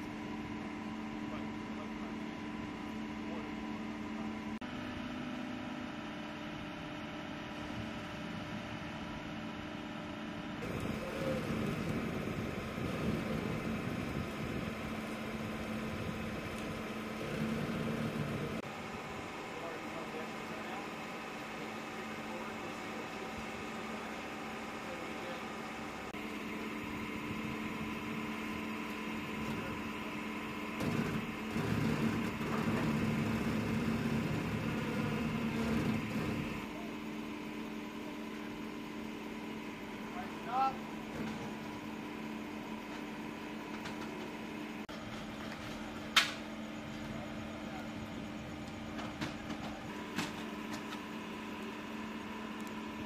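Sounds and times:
machinery hum: 0.0 - 53.0
engine humming with low rumble: 7.4 - 20.9
vehicle engine idling: 10.6 - 41.0.

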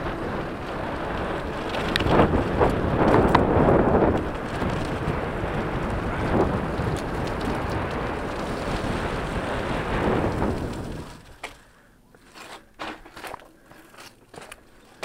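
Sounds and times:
wind buffeting microphone: 0.0 - 11.5
bike tyres crunching on gravel: 0.0 - 15.0.

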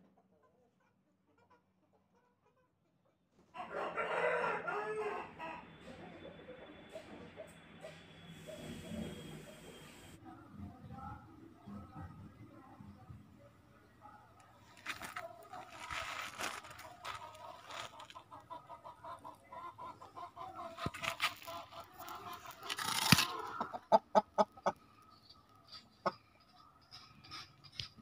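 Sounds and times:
chickens clucking: 0.0 - 28.0
scratchy noise: 14.5 - 18.3, 20.6 - 23.8.

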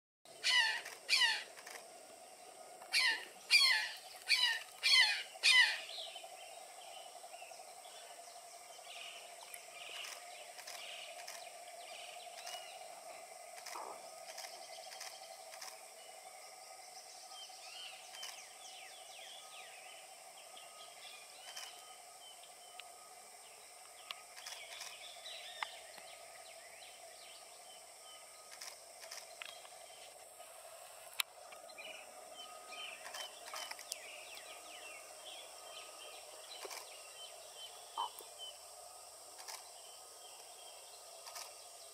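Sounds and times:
small birds chirping: 0.3 - 1.8, 2.9 - 16.1, 17.0 - 22.9, 31.6 - 38.7
faint steady hum: 0.3 - 41.9.

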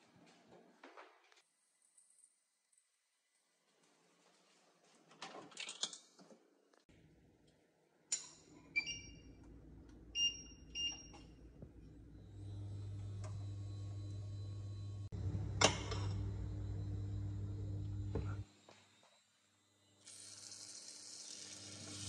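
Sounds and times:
induction cooktop beeping: 8.7 - 9.5, 12.1 - 18.4
low electrical hum: 9.2 - 18.5.

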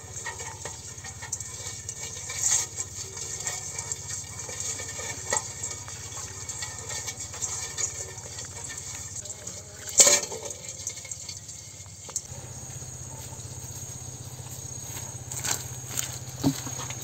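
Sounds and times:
crab legs scratching on metal bowl: 0.0 - 17.0
steady low hum: 12.2 - 17.0.

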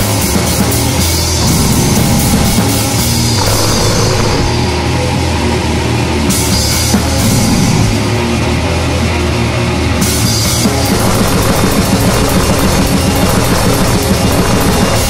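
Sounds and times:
drum kit pounding: 0.0 - 4.8, 6.3 - 8.2, 10.0 - 15.0
heavy metal music: 0.0 - 15.0.

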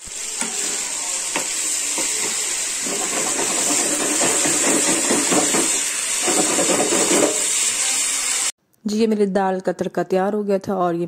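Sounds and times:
food sizzling in oil: 0.0 - 8.6.

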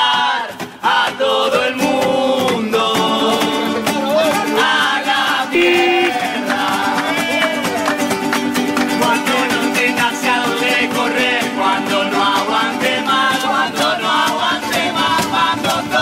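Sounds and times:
men singing together: 0.0 - 3.8, 9.2 - 16.0.

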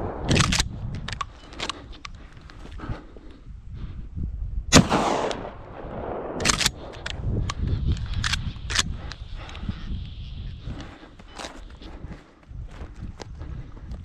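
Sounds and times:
shotgun shot with echo: 4.7 - 6.6.

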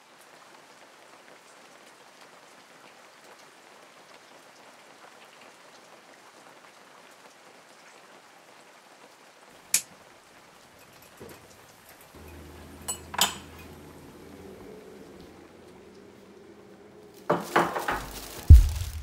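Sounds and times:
rain falling: 0.0 - 19.0.

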